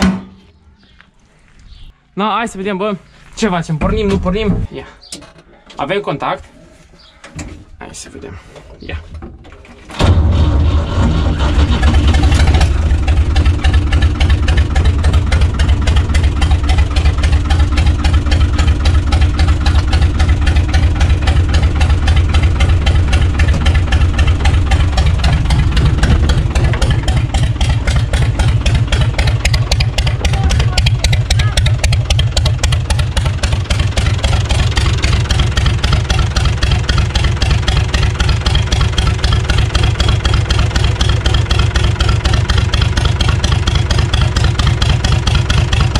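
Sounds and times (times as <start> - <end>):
diesel tractor engine idling: 10.2 - 45.9.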